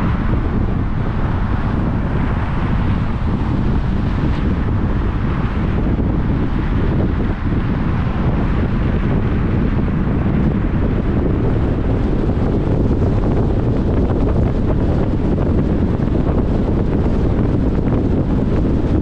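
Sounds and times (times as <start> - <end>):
car driving rumble: 0.0 - 19.0
wind buffeting the microphone: 0.0 - 19.0.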